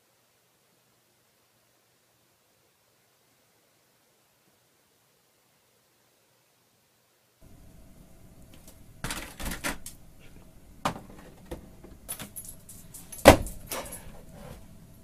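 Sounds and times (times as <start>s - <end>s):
pet door flap clattering: 9.0s - 10.0s, 13.1s - 14.1s.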